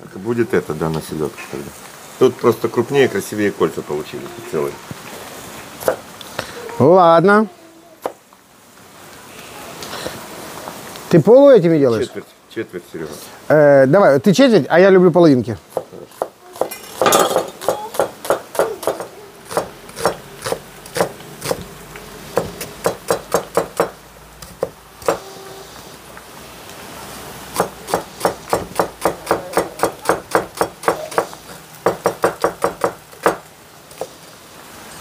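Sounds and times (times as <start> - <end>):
knife chopping on wooden board: 15.7 - 21.6, 22.4 - 25.2, 27.6 - 33.4.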